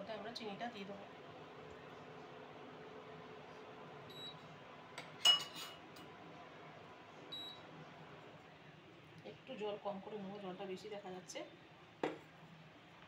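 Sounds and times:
metallic clink on saucepan: 0:05.2 - 0:05.8.

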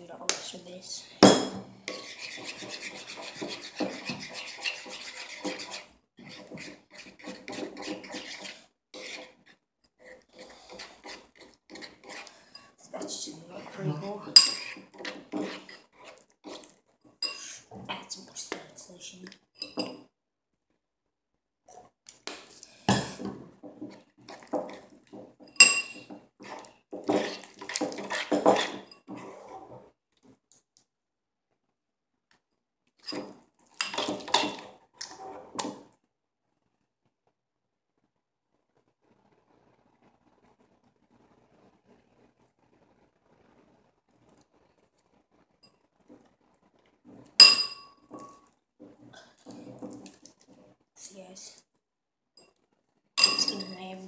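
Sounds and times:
metal spoon scraping ceramic bowl: 0:01.4 - 0:17.6, 0:23.8 - 0:29.8, 0:33.0 - 0:35.6, 0:47.4 - 0:48.4
spoon clinking against bowl: 0:25.5 - 0:26.1, 0:47.4 - 0:48.4, 0:53.2 - 0:53.8.

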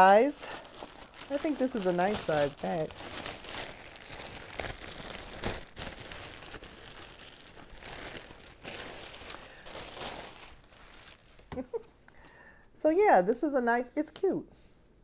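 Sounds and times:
bag crinkling and rustling: 0:00.0 - 0:11.7.

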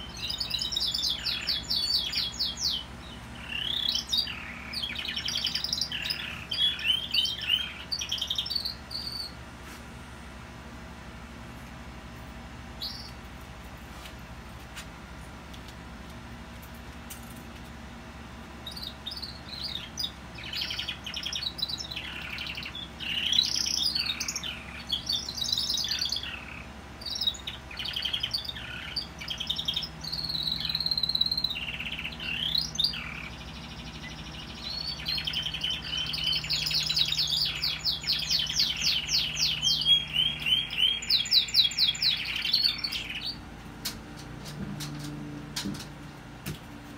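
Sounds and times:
canary singing trills: 0:00.0 - 0:09.4, 0:12.6 - 0:13.3, 0:18.5 - 0:43.6.

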